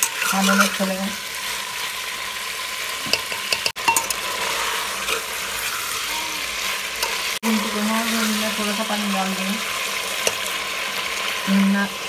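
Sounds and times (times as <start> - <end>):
potatoes sizzling in oil: 0.0 - 12.0
spoon scraping and clinking on pot: 3.1 - 7.3.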